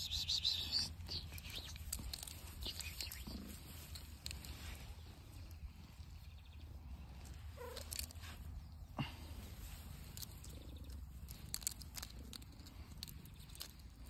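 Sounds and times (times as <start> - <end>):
short clicks and rustles: 0.8 - 5.0, 9.5 - 14.0
cat purring: 1.2 - 6.2.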